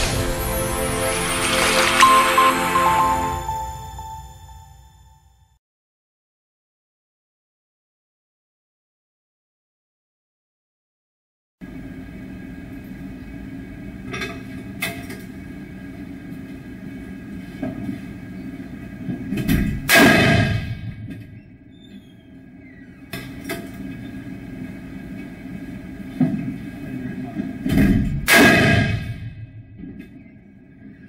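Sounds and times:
steady hum: 0.0s - 4.6s.

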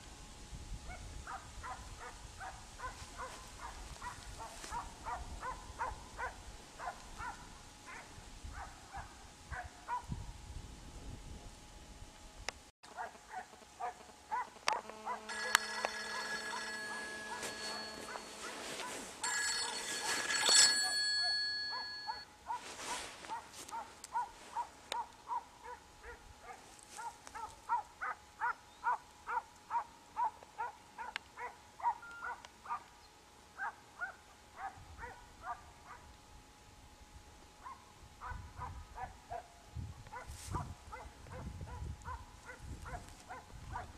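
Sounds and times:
hounds baying: 1.4s - 10.0s, 12.9s - 32.9s
steady ringing tone: 14.9s - 22.3s.

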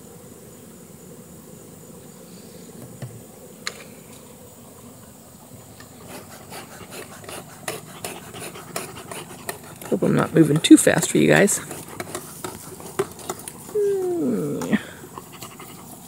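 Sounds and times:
bees buzzing: 0.0s - 16.0s
high insect trill: 0.0s - 16.0s
rustling and clicking handling noise: 8.8s - 13.8s.

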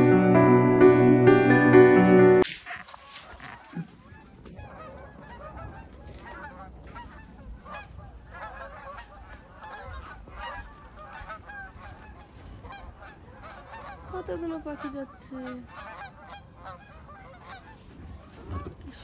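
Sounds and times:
piano tune: 0.0s - 2.4s
geese honking: 2.5s - 18.4s.

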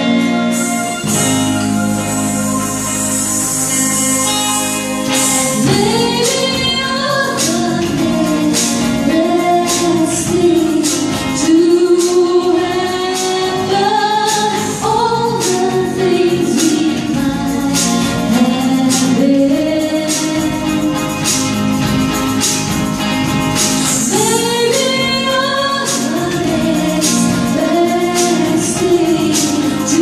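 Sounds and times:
bass guitar: 0.0s - 30.0s
electric guitar: 0.0s - 30.0s
electronic drum kit with cymbals: 0.0s - 30.0s
keyboard: 0.0s - 30.0s
woman singing: 5.1s - 21.6s, 23.8s - 30.0s.

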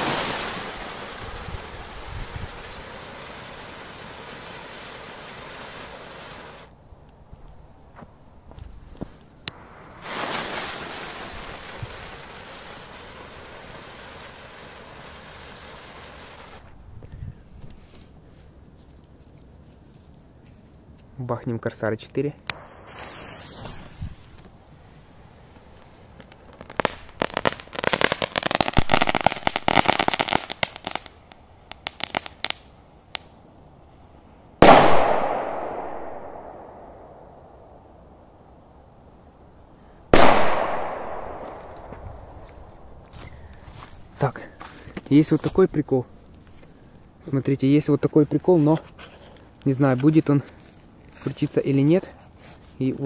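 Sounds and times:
firecracker bang: 0.0s - 1.0s, 9.5s - 13.8s, 34.6s - 37.4s, 40.1s - 42.9s
firework hissing: 0.0s - 6.7s, 9.5s - 16.7s, 22.5s - 31.2s
fuse crackling: 22.4s - 33.3s, 40.2s - 52.0s.

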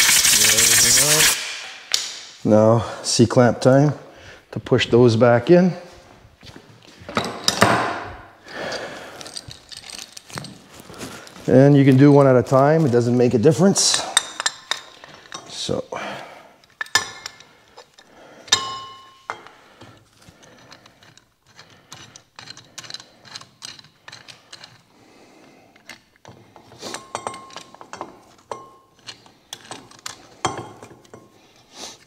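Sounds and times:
metal clamp clinking on brake: 26.8s - 30.2s.

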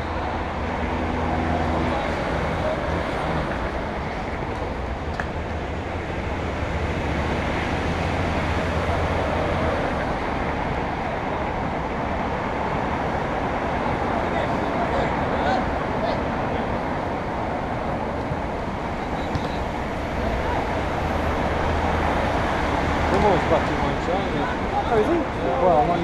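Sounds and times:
traffic rumble: 0.0s - 26.0s.

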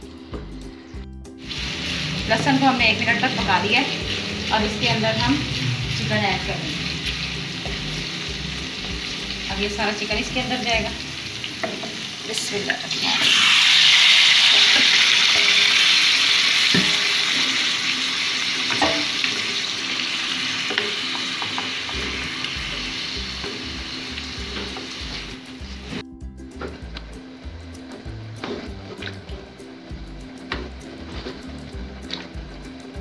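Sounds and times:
chicken sizzling in hot oil: 1.4s - 26.0s.

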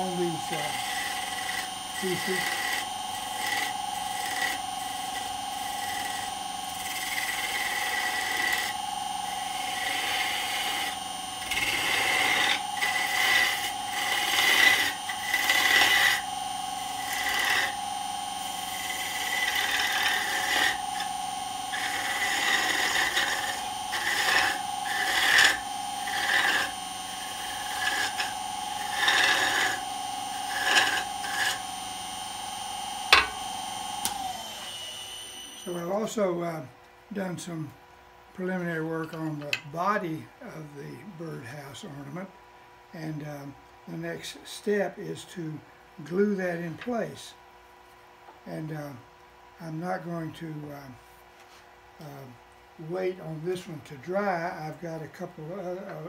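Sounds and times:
turning tool scraping wood: 0.0s - 31.8s, 52.9s - 56.0s
lathe motor whine: 0.0s - 42.3s, 49.7s - 56.0s.

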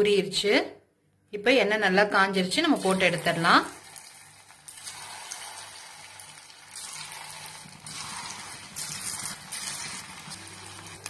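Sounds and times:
food sizzling in hot oil: 2.7s - 11.0s.

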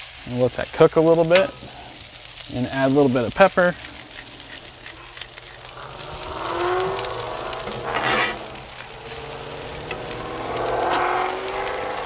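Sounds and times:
food sizzling on a griddle: 0.0s - 12.0s
metal spatula scraping griddle: 3.6s - 12.0s.

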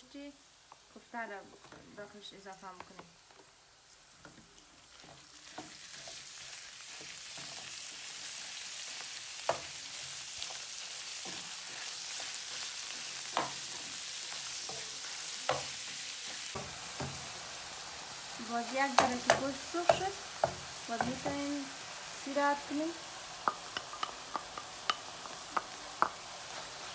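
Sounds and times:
meat sizzling in frying pan: 0.0s - 26.9s
spatula knocking against pan: 18.9s - 21.3s, 23.4s - 26.2s.

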